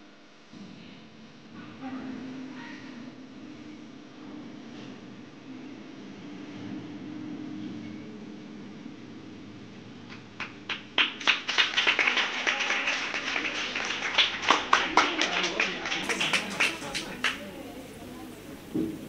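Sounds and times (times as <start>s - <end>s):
crowd applauding: 10.4s - 18.8s.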